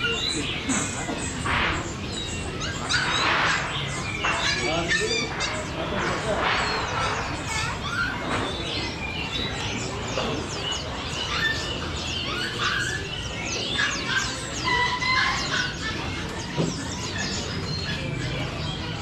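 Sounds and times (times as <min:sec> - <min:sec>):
songbirds chirping and whistling: 0:00.0 - 0:19.0.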